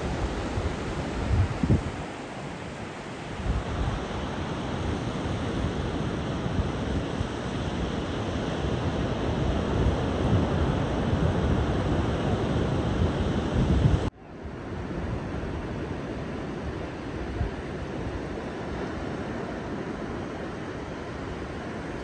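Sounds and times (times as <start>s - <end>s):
ocean waves breaking: 0.0s - 13.6s
wind rumbling on microphone: 0.0s - 22.0s.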